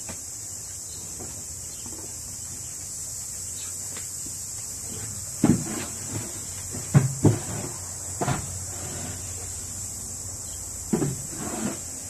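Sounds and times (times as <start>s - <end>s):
steady high hiss: 0.0s - 12.0s
basket knocking against wood: 6.7s - 8.6s.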